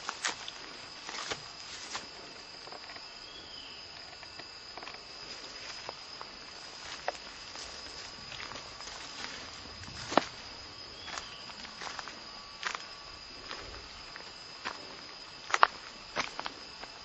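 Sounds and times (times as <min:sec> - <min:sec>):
footsteps on leaf litter: 0:00.0 - 0:02.2, 0:06.7 - 0:14.8
insects droning: 0:00.0 - 0:17.0.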